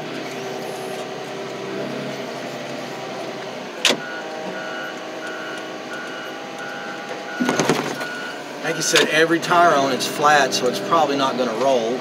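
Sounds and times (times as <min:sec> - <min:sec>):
wheel loader engine running: 0:00.0 - 0:12.0
reversing alarm beeping: 0:04.0 - 0:09.1
sharp clunk: 0:07.4 - 0:08.1.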